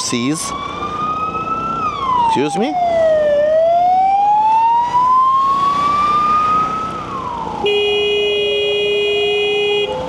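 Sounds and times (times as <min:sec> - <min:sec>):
emergency vehicle siren wailing: 0:00.0 - 0:10.0
road noise: 0:00.0 - 0:10.0
horn blast: 0:07.6 - 0:10.0.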